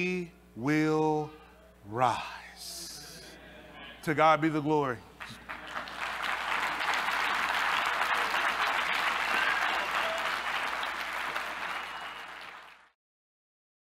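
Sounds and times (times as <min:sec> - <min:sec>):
congregation applauding: 0:05.2 - 0:13.0.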